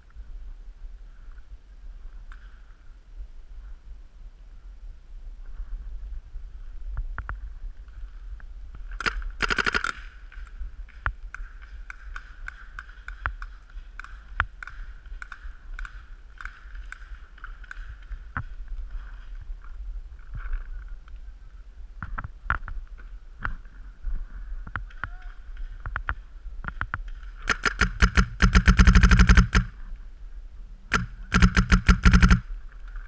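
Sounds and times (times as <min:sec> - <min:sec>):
wind rumble on microphone: 0:00.0 - 0:09.4, 0:10.0 - 0:27.5
paintball markers firing: 0:09.0 - 0:10.4, 0:26.8 - 0:29.7, 0:30.9 - 0:32.5.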